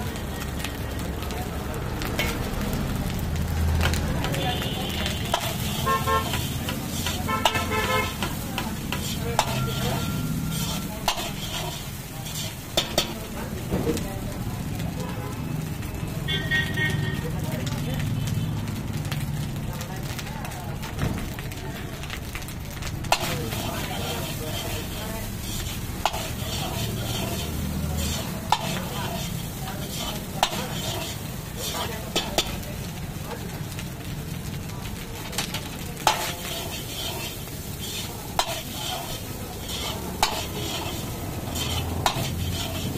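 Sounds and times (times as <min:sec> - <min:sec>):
rice frying: 0:00.0 - 0:42.9
metal ladle scraping wok: 0:02.1 - 0:02.6, 0:03.8 - 0:13.4, 0:23.0 - 0:32.6, 0:35.2 - 0:42.9
vehicle horn tooting: 0:04.4 - 0:06.6, 0:07.2 - 0:08.2, 0:16.2 - 0:17.3
metal ladle clacking against pan: 0:05.3 - 0:05.6, 0:06.3 - 0:09.8, 0:23.1 - 0:23.7, 0:26.0 - 0:29.3, 0:38.3 - 0:42.9.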